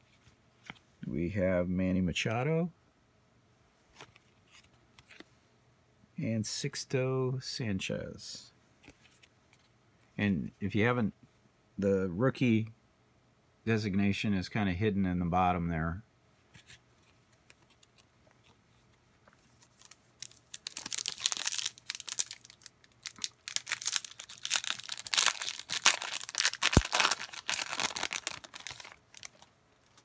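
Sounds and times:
foil wrapper tearing and crinkling: 19.6s - 30.0s.

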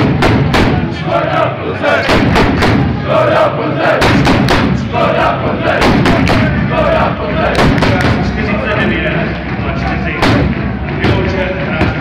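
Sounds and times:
loud thumps: 0.0s - 1.0s, 2.0s - 3.0s, 3.9s - 6.8s, 7.4s - 8.5s, 10.1s - 12.0s
fans chanting in unison: 0.0s - 11.3s.

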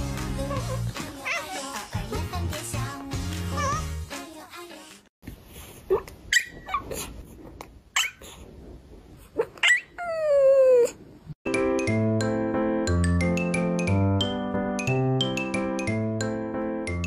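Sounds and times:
animal yelping: 9.4s - 10.9s.

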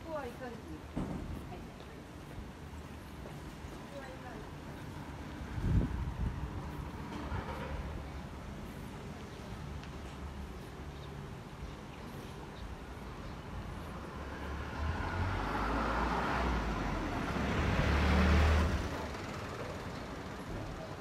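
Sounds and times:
vehicle driving past: 14.0s - 20.5s.

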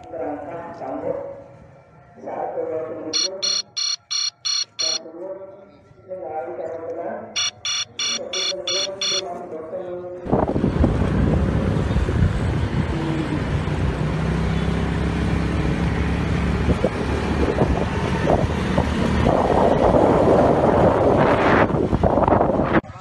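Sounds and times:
road traffic noise: 3.1s - 5.0s, 7.4s - 9.4s, 10.3s - 23.0s.

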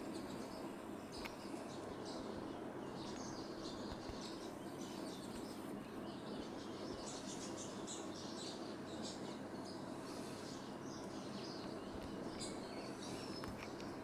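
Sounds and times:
low background hiss: 0.0s - 14.0s.

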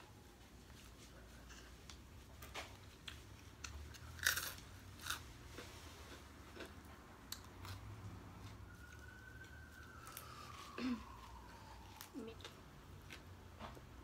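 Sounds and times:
crunchy bites and chewing: 3.6s - 5.7s.

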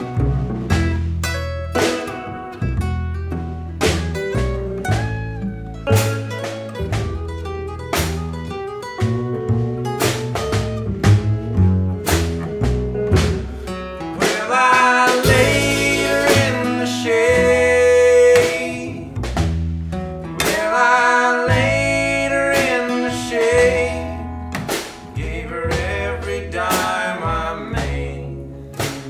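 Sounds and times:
electric guitar: 0.0s - 25.4s
acoustic guitar: 0.0s - 29.0s
upright bass: 0.0s - 29.0s
two voices singing in harmony: 14.2s - 19.2s, 20.4s - 24.4s, 25.1s - 28.5s.

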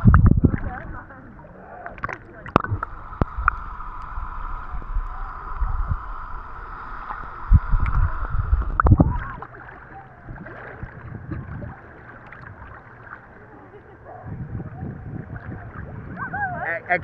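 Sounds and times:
wind rumble on microphone: 0.0s - 12.9s, 13.8s - 17.0s
sea water lapping: 0.0s - 17.0s.

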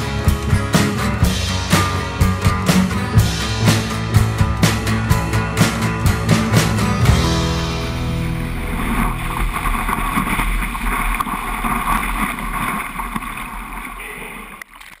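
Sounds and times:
whitewater rushing and spraying: 7.6s - 14.6s.

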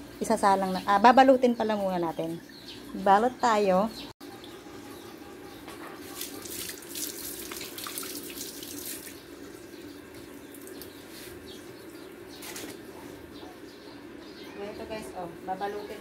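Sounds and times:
tap water running and splashing: 6.2s - 11.0s.

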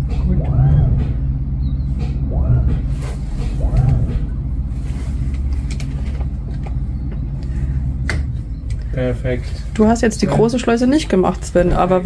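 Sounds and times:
boat engine low hum: 0.0s - 12.0s.

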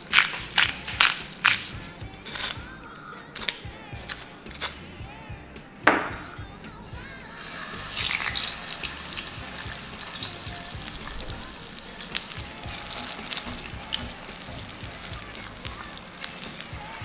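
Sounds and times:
fish frying in hot oil: 7.4s - 17.0s.

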